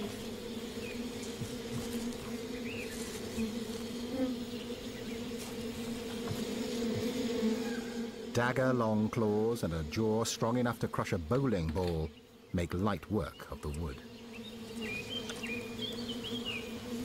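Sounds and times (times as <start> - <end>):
bees buzzing: 0.0 - 17.0.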